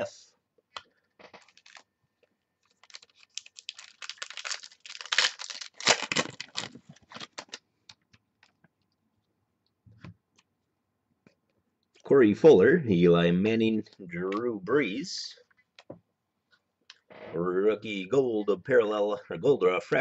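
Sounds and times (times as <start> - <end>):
cards and wrapper rustling: 0.7 - 8.6.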